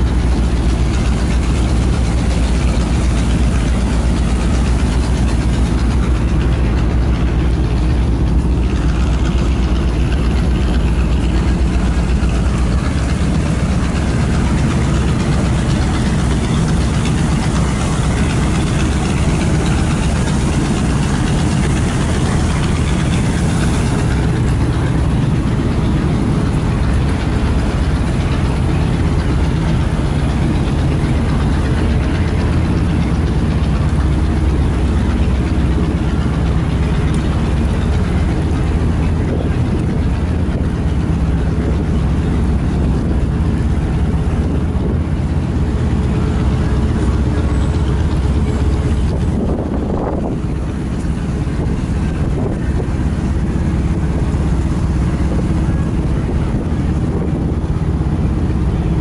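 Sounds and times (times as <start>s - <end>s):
boat diesel engine drone: 0.0s - 59.0s.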